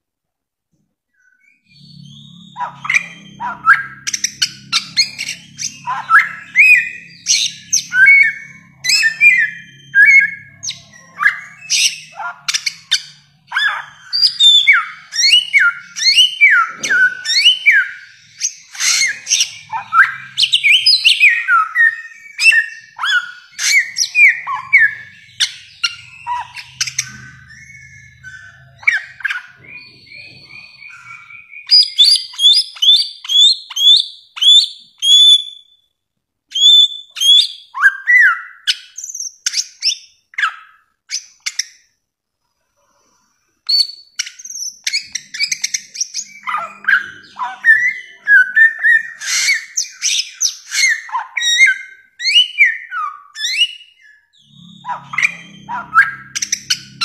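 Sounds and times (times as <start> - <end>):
bird whistling song: 1.1 - 35.9, 36.5 - 41.9, 43.6 - 57.0.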